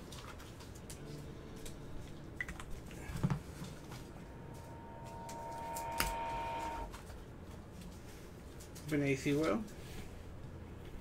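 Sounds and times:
steady high tone: 1.0 - 7.2.

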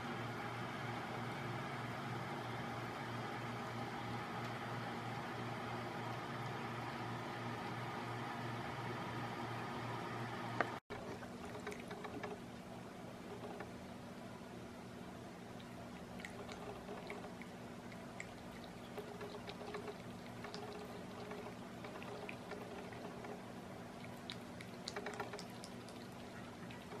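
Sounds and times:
steady low hum: 0.0 - 27.0
cat lapping water: 15.5 - 27.0.

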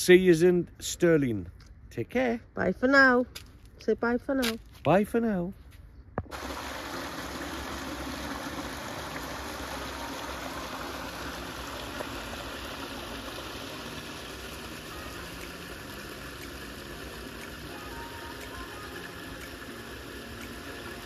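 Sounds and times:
waterfall splashing into pool: 6.3 - 21.0.

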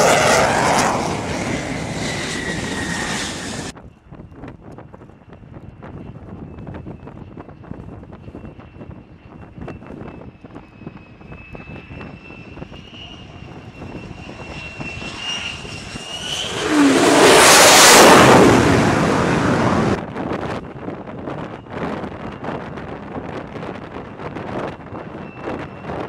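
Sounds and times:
jet passing overhead: 0.0 - 3.8, 10.7 - 20.2
fighter jet engine whine: 0.0 - 26.0.

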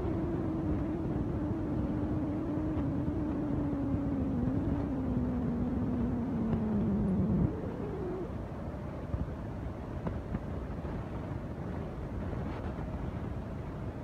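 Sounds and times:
small engine humming: 0.0 - 8.4.

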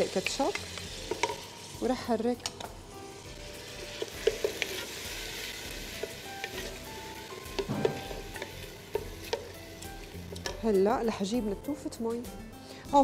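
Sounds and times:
peppers sizzling in a pot: 0.0 - 13.0
wooden spoon knocking on pot: 7.6 - 9.4.

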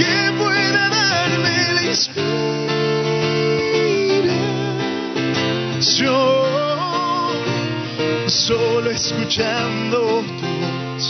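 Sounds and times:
acoustic guitar: 0.0 - 11.0
man singing: 0.0 - 11.0.

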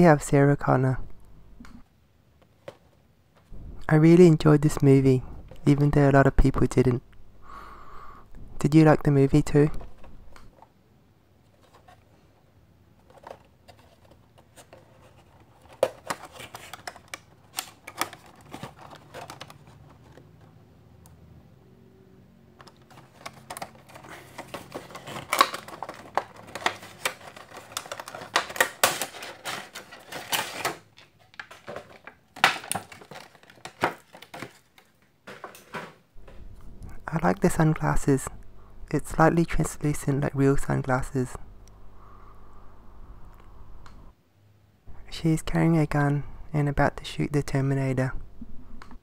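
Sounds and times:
plastic packaging crinkling: 13.0 - 20.2, 22.6 - 35.7.

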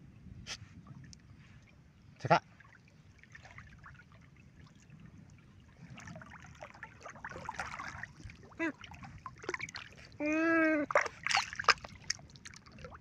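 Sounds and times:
otters splashing in water: 6.0 - 10.1, 10.9 - 13.0.

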